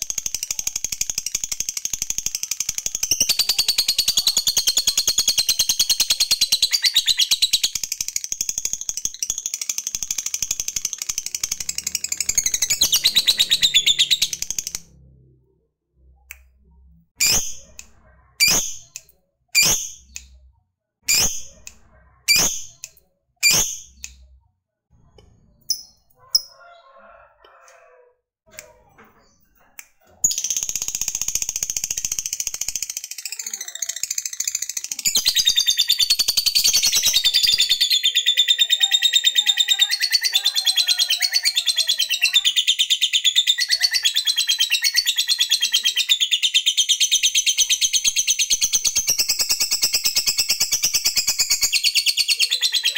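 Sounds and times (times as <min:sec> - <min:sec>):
lovebird sharp chirps: 0:17.2 - 0:20.4, 0:21.1 - 0:24.3.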